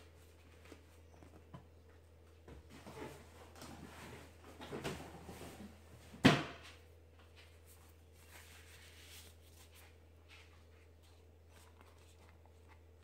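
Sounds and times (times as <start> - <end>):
hands rustling plastic piping bag: 7.6 - 13.0.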